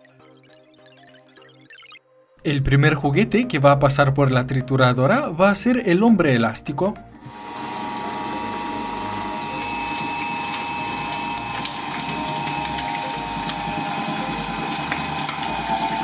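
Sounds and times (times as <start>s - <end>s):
shredder motor whine: 7.2s - 16.0s.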